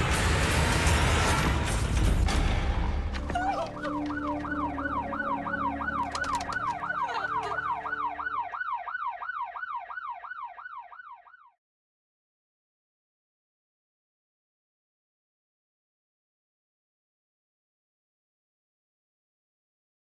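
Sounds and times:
police siren yelping: 0:03.3 - 0:11.6
sharp clicks: 0:06.0 - 0:06.9.

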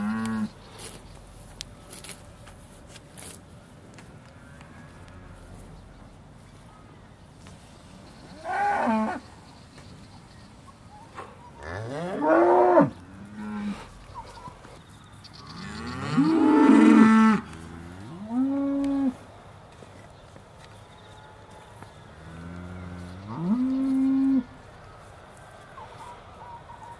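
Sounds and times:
cows mooing: 0:15.5 - 0:19.2.

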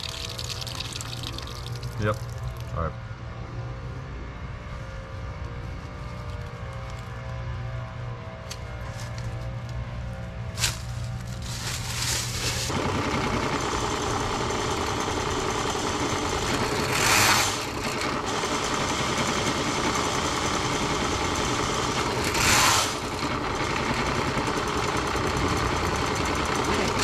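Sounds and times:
drain cleaning machine running: 0:10.6 - 0:27.0.

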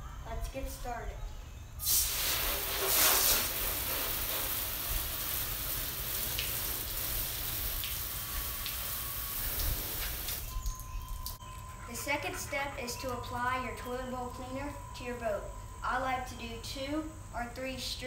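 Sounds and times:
hose spray hissing on boat hull: 0:01.8 - 0:10.5.

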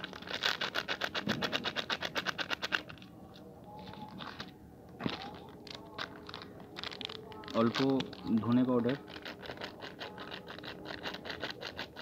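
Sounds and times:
foil crinkles and clicks: 0:05.0 - 0:11.9.

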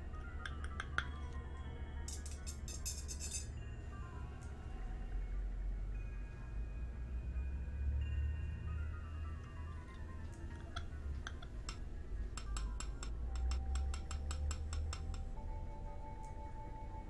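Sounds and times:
low droning music: 0:00.0 - 0:17.0
razor blade tapping hard surface: 0:12.4 - 0:15.3.

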